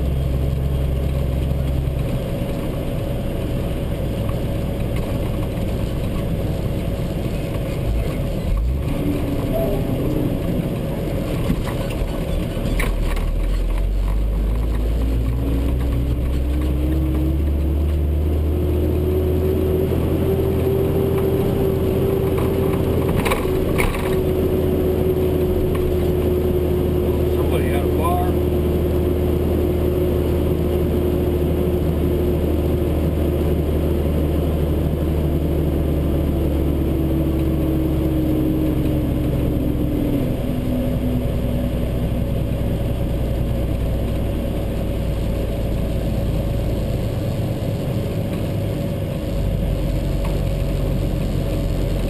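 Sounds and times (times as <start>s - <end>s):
rising whine: 0.0s - 12.1s, 13.2s - 52.0s
truck engine drone: 0.0s - 52.0s.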